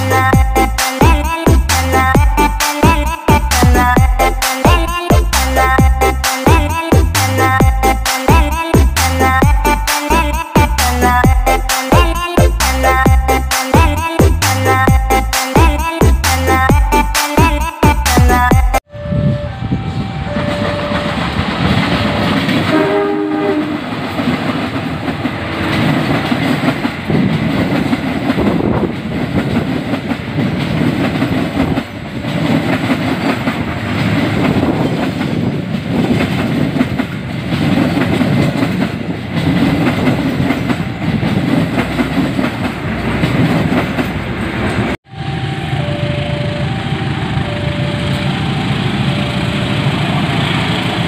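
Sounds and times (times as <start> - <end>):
locomotive engines rumbling: 0.0 - 51.0
train wheels clattering over rail joints: 21.1 - 22.8, 23.8 - 45.0
train horn blast: 22.6 - 24.0.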